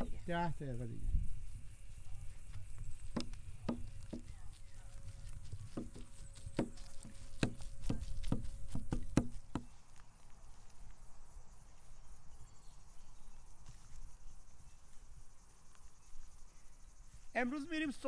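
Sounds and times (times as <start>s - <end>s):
insects chirping: 0.0s - 18.0s
cleaver chopping on wooden block: 6.6s - 9.7s.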